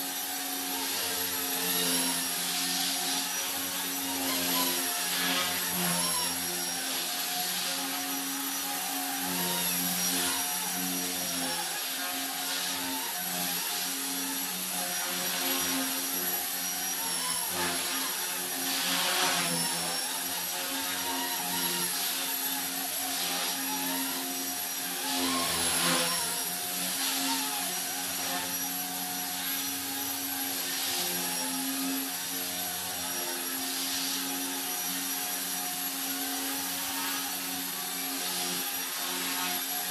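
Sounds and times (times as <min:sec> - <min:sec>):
rc helicopter motor whine: 0:00.0 - 0:39.9.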